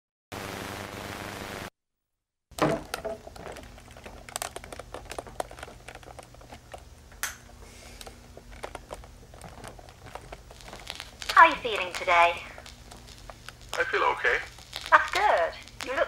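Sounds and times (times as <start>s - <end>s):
tv static hiss: 0.3s - 1.7s, 6.3s - 16.0s
clicks and crackles: 2.5s - 16.0s
low hum: 2.7s - 16.0s.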